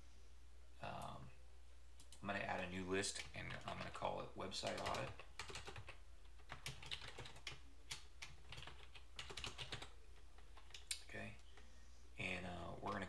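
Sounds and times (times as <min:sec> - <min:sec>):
faint low hum: 0:00.0 - 0:13.0
typing on a computer keyboard: 0:03.2 - 0:04.0, 0:04.6 - 0:10.9.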